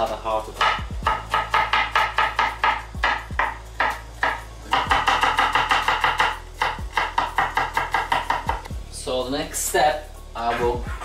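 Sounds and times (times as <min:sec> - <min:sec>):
background music with steady beat: 0:00.0 - 0:11.0
knife chopping on wooden board: 0:00.6 - 0:08.8.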